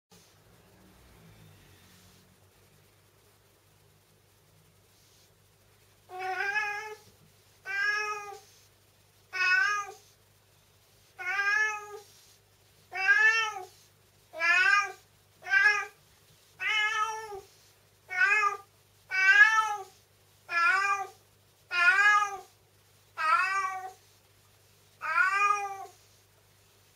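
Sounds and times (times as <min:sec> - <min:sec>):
cat meowing: 0:06.1 - 0:08.5, 0:09.3 - 0:10.0, 0:11.2 - 0:12.1, 0:12.9 - 0:13.8, 0:14.4 - 0:16.0, 0:16.6 - 0:17.5, 0:18.1 - 0:19.9, 0:20.5 - 0:22.5, 0:23.2 - 0:24.0, 0:25.0 - 0:26.0.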